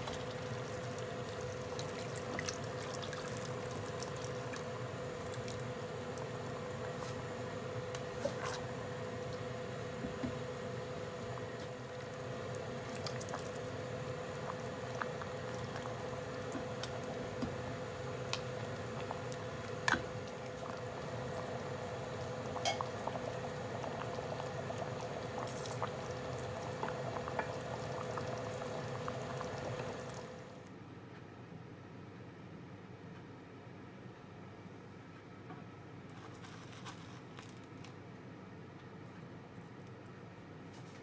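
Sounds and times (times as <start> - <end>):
stew bubbling in a pot: 0.0 - 30.6
steady hum: 0.0 - 30.7.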